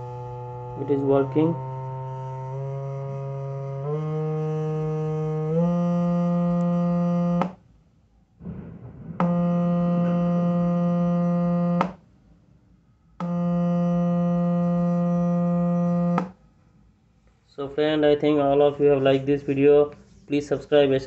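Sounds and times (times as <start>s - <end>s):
buzzy electronic test tone: 0.0s - 7.5s, 9.0s - 12.0s, 13.2s - 16.4s
brief noise: 8.4s - 11.9s.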